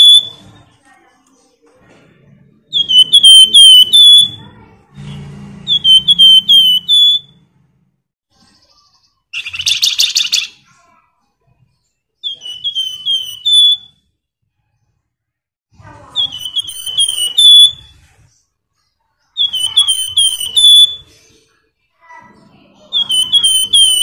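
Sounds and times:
songbird whistled notes: 0.0s - 0.4s, 2.7s - 4.4s, 5.7s - 7.4s, 12.2s - 14.1s, 16.2s - 18.0s, 19.3s - 21.2s, 22.9s - 24.0s.

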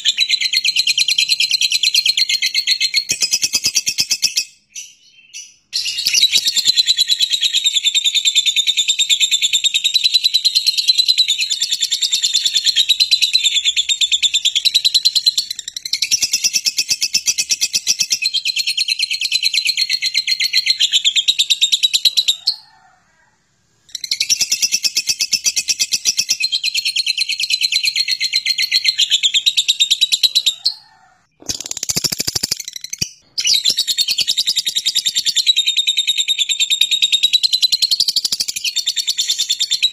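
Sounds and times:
bird chattering trill: 31.3s - 35.7s.

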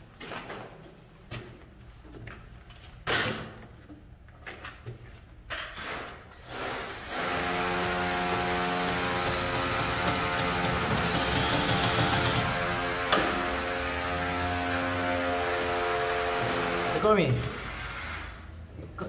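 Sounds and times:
cordless drill running: 6.4s - 14.8s.

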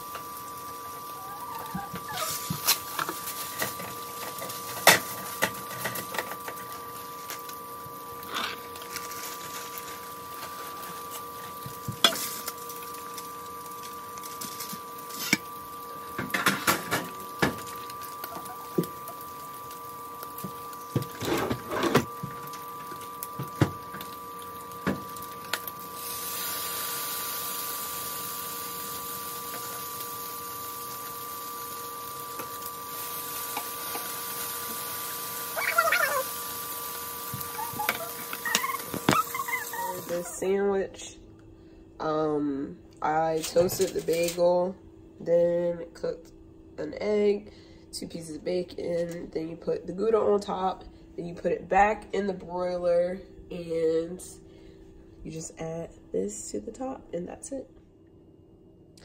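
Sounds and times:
food sizzling in a pan: 0.0s - 40.4s
faint hum: 0.0s - 59.0s.

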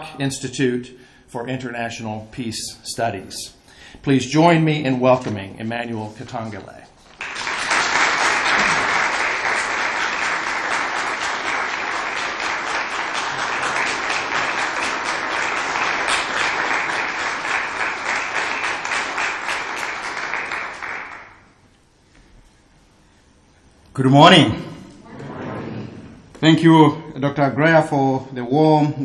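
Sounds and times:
audience applauding: 7.1s - 21.6s.

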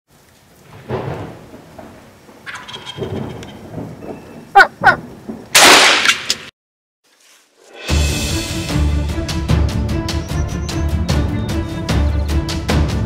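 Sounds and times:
turkey gobbling: 2.5s - 3.6s, 4.5s - 5.0s.

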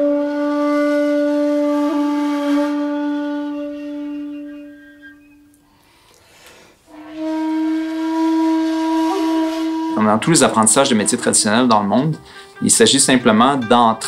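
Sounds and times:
woodwind long low note: 0.0s - 5.6s, 6.9s - 11.7s.

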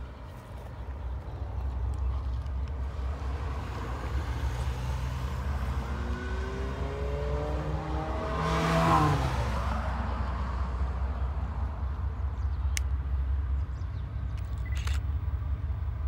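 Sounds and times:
vehicle driving past: 3.2s - 10.2s.

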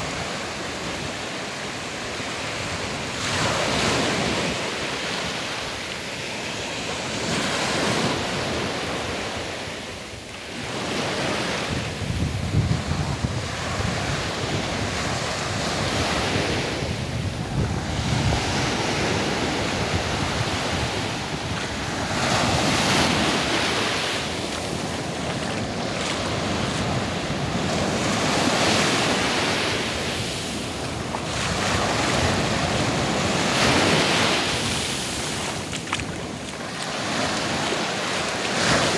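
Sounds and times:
small waves breaking on beach: 0.0s - 38.9s
wind buffeting microphone: 11.2s - 37.9s.

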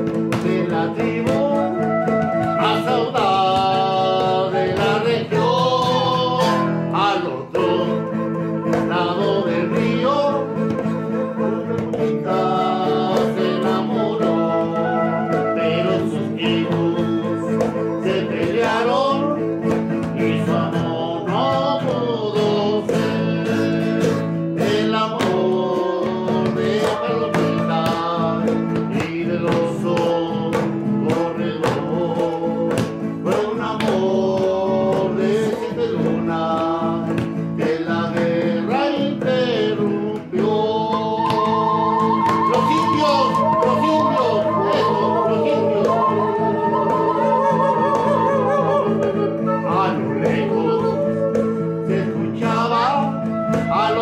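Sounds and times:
wind instrument melody: 0.0s - 4.8s, 6.4s - 20.3s, 25.7s - 32.5s, 40.5s - 54.0s
strummed acoustic guitar: 0.0s - 54.0s.

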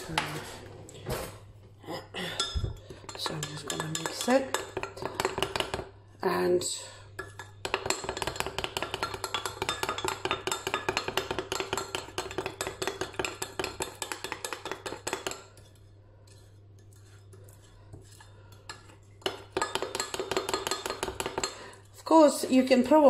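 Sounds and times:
metal spoon stirring in glass jug: 2.4s - 5.8s, 7.2s - 22.1s.

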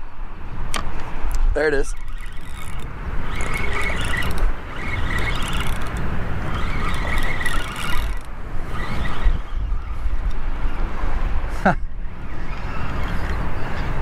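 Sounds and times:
wind on microphone: 0.0s - 14.0s
fishing reel gears whirring: 1.6s - 10.9s, 12.0s - 13.8s.

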